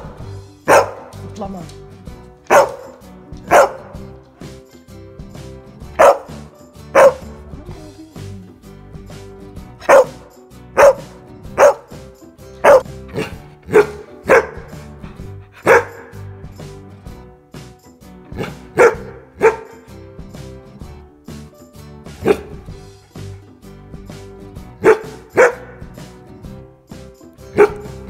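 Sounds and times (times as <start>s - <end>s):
dog barking: 0.0s - 1.2s, 2.5s - 4.1s, 5.9s - 7.4s, 9.8s - 12.0s, 12.6s - 14.9s, 15.5s - 16.3s, 18.3s - 19.9s, 22.2s - 22.7s, 24.8s - 26.0s, 27.5s - 28.0s.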